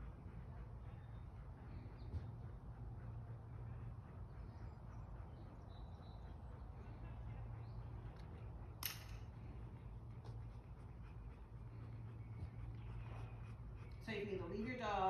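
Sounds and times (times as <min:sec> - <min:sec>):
steady low hum: 0:00.0 - 0:15.0
sharp click: 0:08.8 - 0:09.3.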